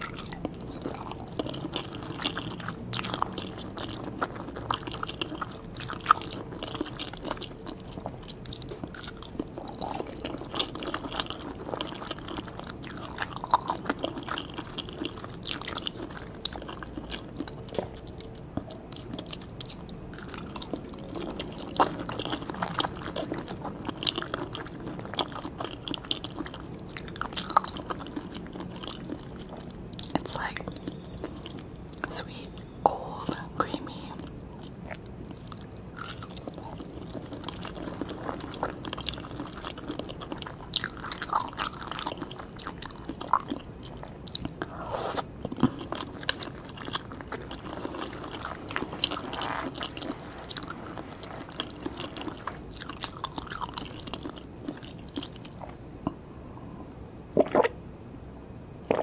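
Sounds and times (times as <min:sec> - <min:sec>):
person chewing food: 0:00.0 - 0:56.6, 0:57.4 - 0:57.7
mouth clicks and smacks: 0:57.4 - 0:57.8.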